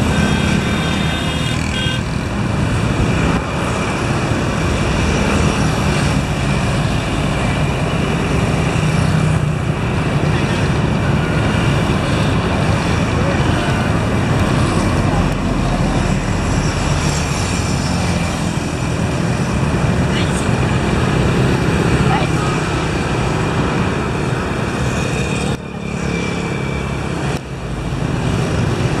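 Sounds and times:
traffic: 0.0 - 29.0
vehicle engine and road noise: 0.0 - 29.0.

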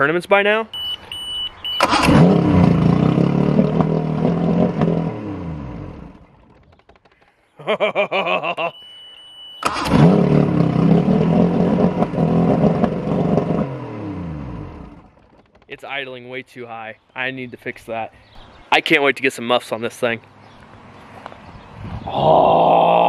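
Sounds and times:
steady beep: 0.7 - 1.9, 8.6 - 9.7
outboard motor idling high: 1.8 - 7.2, 9.6 - 15.6.

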